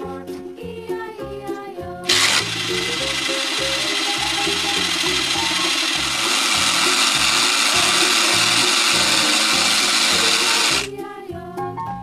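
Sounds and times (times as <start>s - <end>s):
background music: 0.0s - 12.0s
toy blender whirring: 2.1s - 10.9s.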